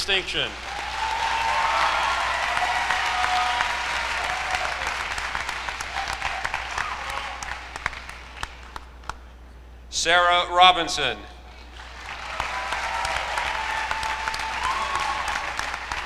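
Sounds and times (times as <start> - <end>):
audience applauding: 0.5 - 8.9, 11.7 - 16.0.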